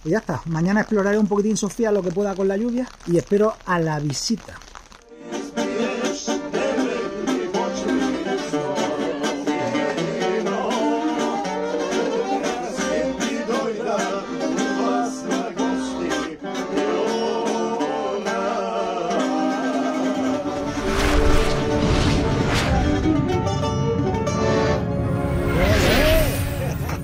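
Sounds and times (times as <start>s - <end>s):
accordion: 5.1s - 20.8s
two men singing together: 5.2s - 20.4s.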